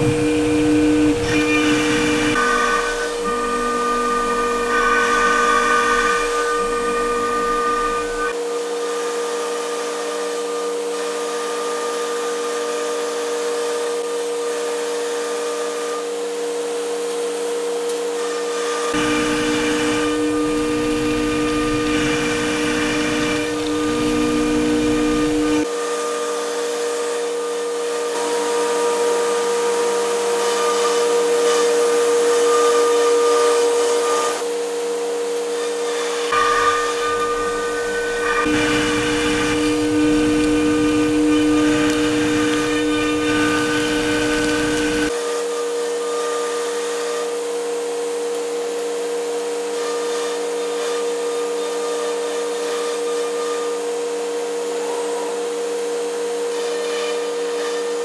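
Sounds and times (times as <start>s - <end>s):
air rush of dust extraction: 0.0s - 8.3s, 19.0s - 25.6s, 36.3s - 45.1s
router spindle whining: 0.0s - 8.4s, 18.9s - 26.0s, 35.4s - 45.5s.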